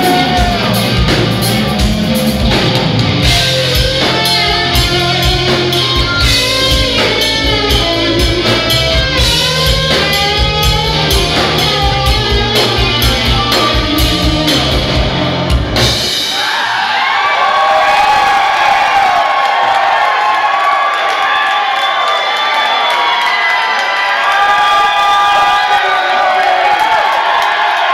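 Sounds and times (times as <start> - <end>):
electric guitar lead lines: 0.0 - 16.2
rock band playing: 0.0 - 18.7
crowd cheering: 0.0 - 27.9.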